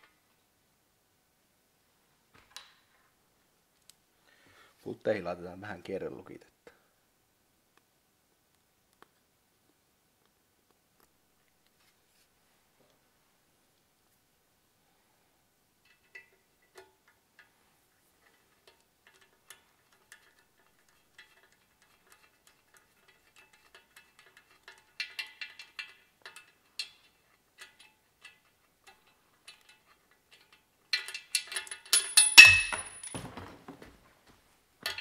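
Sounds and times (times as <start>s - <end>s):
metal on metal clatter: 15.8s - 34.0s
hand tools ticking and clinking: 18.2s - 33.5s
short high metallic ring: 32.0s - 33.2s.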